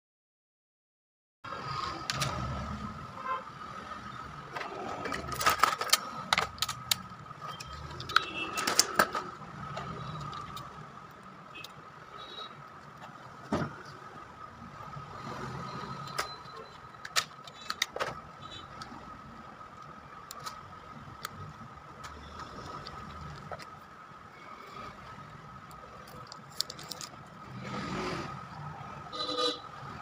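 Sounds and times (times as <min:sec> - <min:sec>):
clicks and taps of plastic parts: 0:05.1 - 0:10.8.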